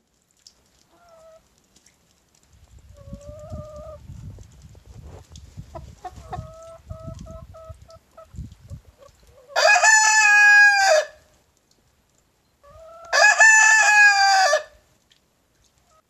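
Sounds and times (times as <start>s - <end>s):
chickens calling and clucking: 0.9s - 1.5s, 2.9s - 4.1s, 5.0s - 10.7s, 12.6s - 14.2s.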